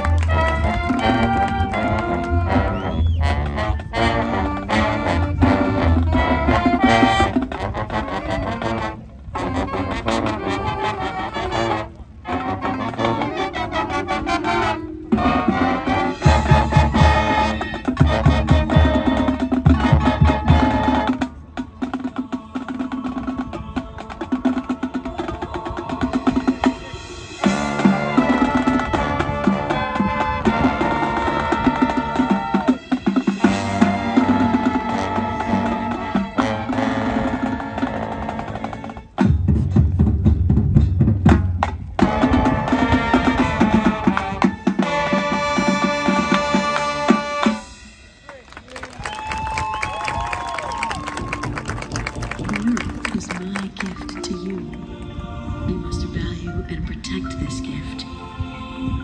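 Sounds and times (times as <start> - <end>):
marching band playing: 0.0 - 59.0
drum line hits: 39.1 - 48.4.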